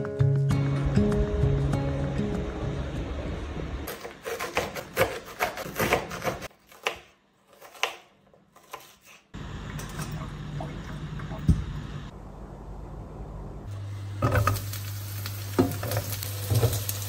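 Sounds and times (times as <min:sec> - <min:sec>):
knife chopping on cutting board: 0:03.9 - 0:09.2.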